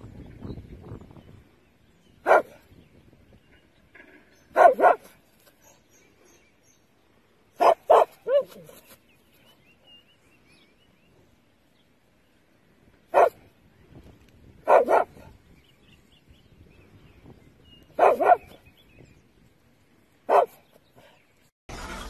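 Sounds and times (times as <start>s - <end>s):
dog barking: 2.2s - 2.6s, 4.5s - 5.8s, 7.6s - 8.7s, 13.1s - 13.4s, 14.6s - 15.3s, 18.0s - 18.6s, 20.3s - 20.6s.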